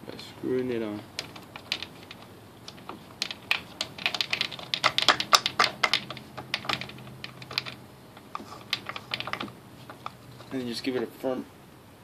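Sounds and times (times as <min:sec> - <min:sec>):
sharp plastic clicks and rattles: 0:01.1 - 0:10.5.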